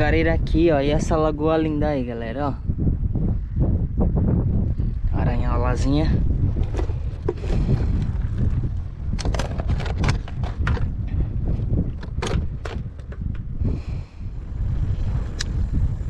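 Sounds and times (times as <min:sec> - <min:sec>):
wind rumble on microphone: 0:00.0 - 0:16.0
plastic case clacks and knocks: 0:09.2 - 0:11.0, 0:11.9 - 0:13.4.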